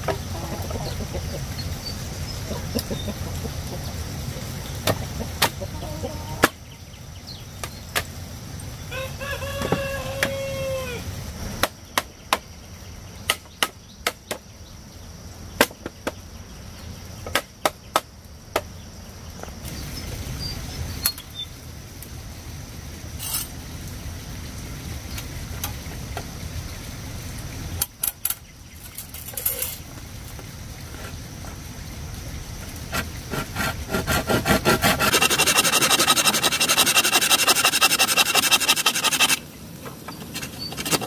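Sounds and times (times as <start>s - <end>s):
chicken calling: 0.1s - 1.6s, 5.0s - 6.5s, 8.9s - 11.1s, 34.6s - 39.4s.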